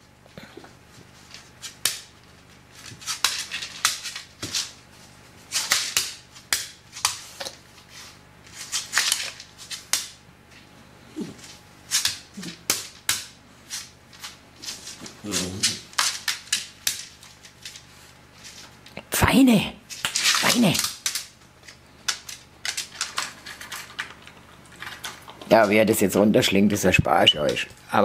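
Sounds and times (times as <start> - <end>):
dog claws tapping on floor: 8.5 - 10.2, 11.4 - 19.0, 19.9 - 25.7.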